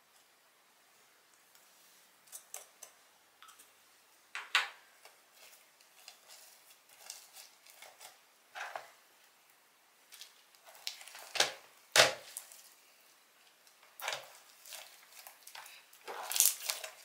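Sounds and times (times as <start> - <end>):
slime clicking and crackling: 13.6 - 17.0.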